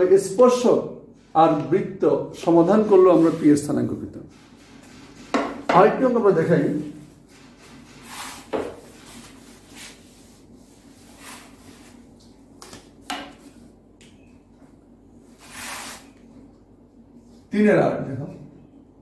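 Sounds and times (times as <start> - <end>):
duster rubbing on whiteboard: 3.0 - 5.6, 7.0 - 12.1, 15.3 - 16.2.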